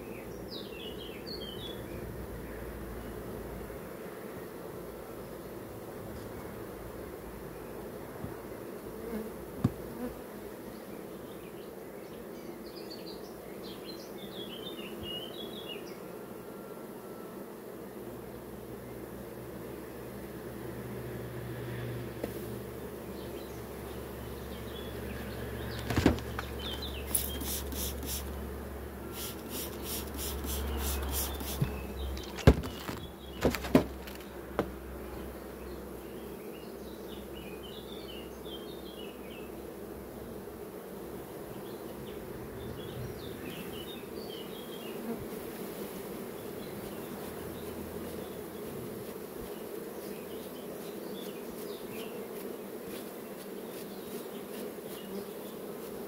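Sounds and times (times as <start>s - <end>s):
bee swarm buzzing: 0.0s - 56.0s
sharp knocks: 25.8s - 26.6s, 31.5s - 34.7s.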